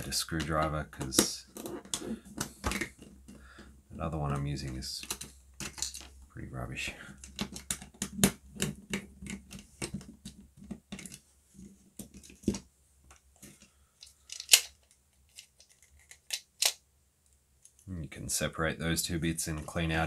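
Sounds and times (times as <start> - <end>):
plastic clicks: 12.0 - 17.9.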